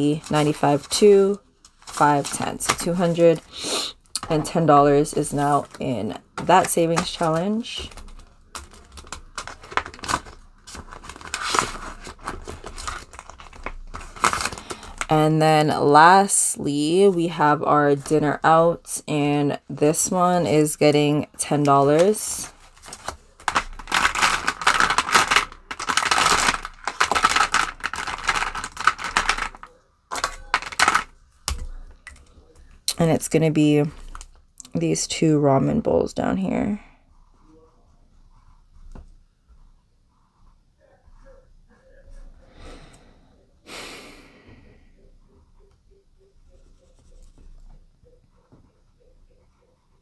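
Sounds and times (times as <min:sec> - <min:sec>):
plastic and banknotes rustling: 0:00.0 - 0:18.8, 0:19.8 - 0:35.0, 0:46.4 - 0:48.6
person breathing loudly: 0:42.4 - 0:45.0.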